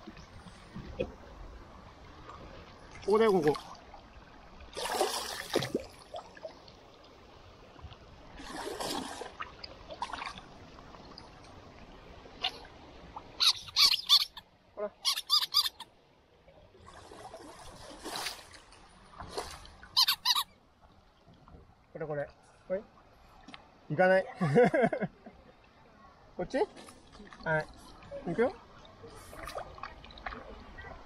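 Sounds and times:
splashing water: 4.7s - 6.6s, 8.4s - 11.3s, 16.8s - 20.5s, 26.7s - 31.0s
otter squeaky chirps: 13.4s - 14.4s, 15.0s - 15.8s, 20.0s - 20.5s.

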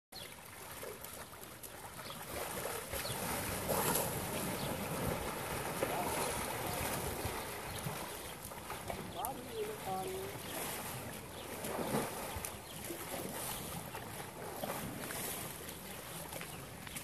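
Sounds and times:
elephants splashing in water: 0.2s - 17.0s.

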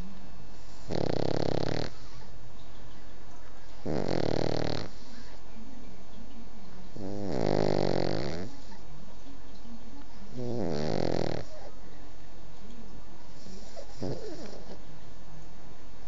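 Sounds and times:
pet snoring: 0.5s - 2.3s, 3.8s - 5.4s, 6.9s - 8.8s, 10.2s - 11.7s, 13.3s - 14.8s.

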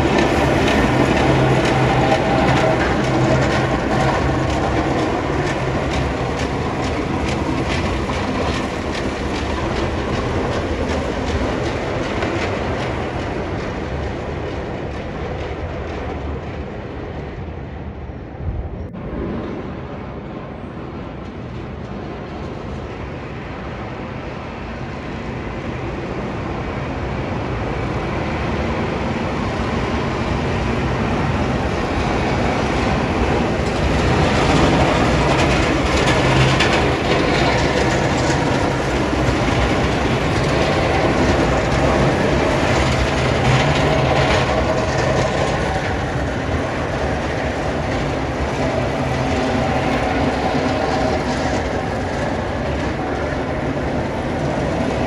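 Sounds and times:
plow blade scraping over snow: 0.0s - 13.6s, 31.4s - 55.0s.

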